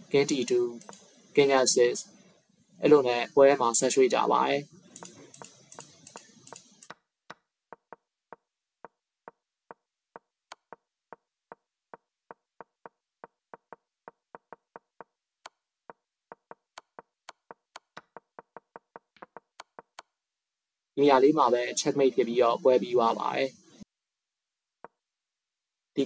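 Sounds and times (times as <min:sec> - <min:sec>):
sharp clicks: 0:00.8 - 0:01.1, 0:05.0 - 0:07.0
short wooden knocks: 0:07.7 - 0:15.2, 0:15.9 - 0:20.0.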